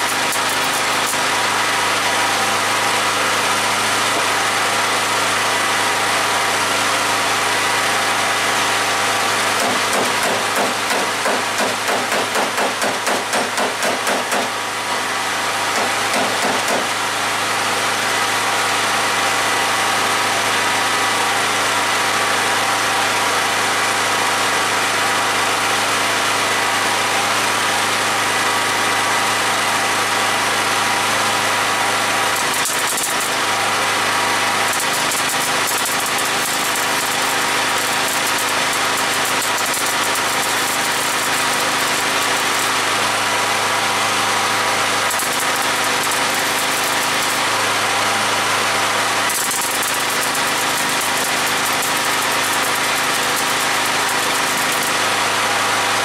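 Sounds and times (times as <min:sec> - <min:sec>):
welder hum: 0:00.0 - 0:18.4, 0:30.0 - 0:56.0
arc welder buzzing crackle: 0:00.0 - 0:56.0.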